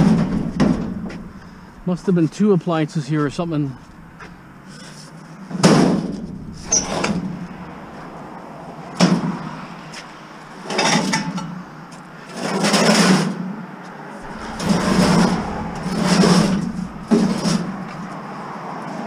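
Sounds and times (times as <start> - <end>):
metal cabinet banging: 0.0 - 2.2, 5.5 - 11.4, 14.2 - 18.4
metal cabinet scraping on concrete: 3.4 - 11.5, 14.2 - 18.4.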